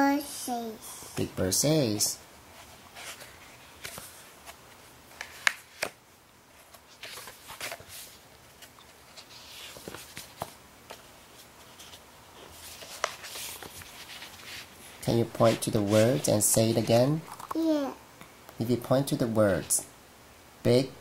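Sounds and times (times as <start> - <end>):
pages turning: 3.0 - 6.0, 6.6 - 17.1
paper rustling: 6.6 - 17.1.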